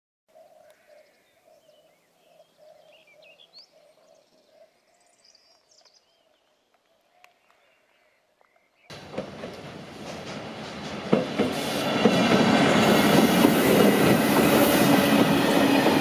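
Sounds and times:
small birds chirping: 0.3s - 8.9s.

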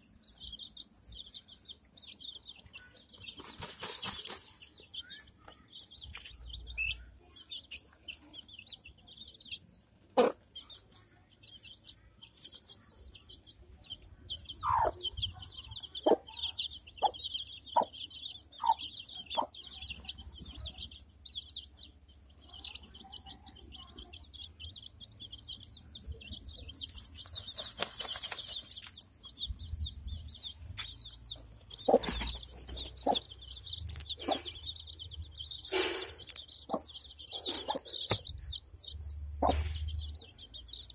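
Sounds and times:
chicks cheeping: 0.0s - 40.9s
hen clucking: 10.0s - 10.7s, 14.4s - 21.0s, 30.8s - 40.2s.

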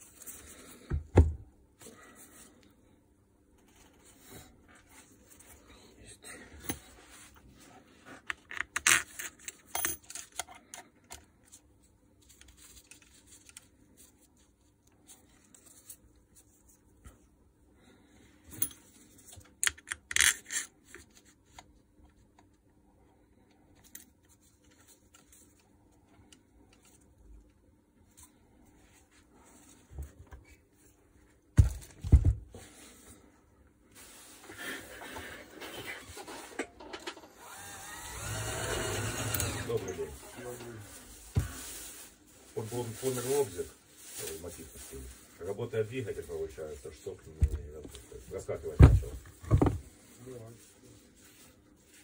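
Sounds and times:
clicks and scrapes of motor parts: 8.2s - 11.3s, 19.4s - 21.1s.

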